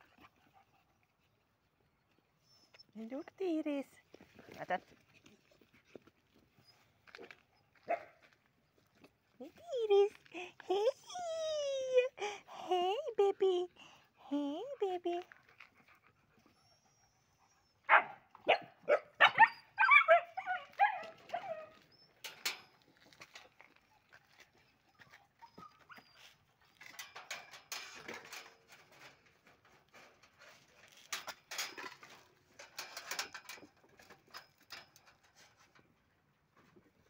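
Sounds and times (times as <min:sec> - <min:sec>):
puppies barking and yelping: 0:16.7 - 0:22.3.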